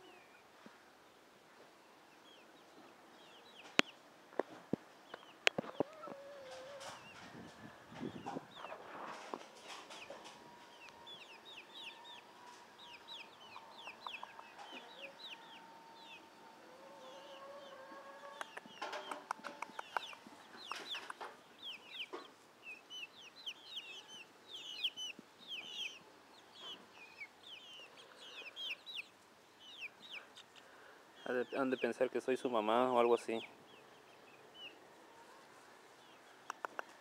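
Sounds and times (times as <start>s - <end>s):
chicks peeping: 1.6s - 37.0s
sharp clicks: 36.4s - 37.0s.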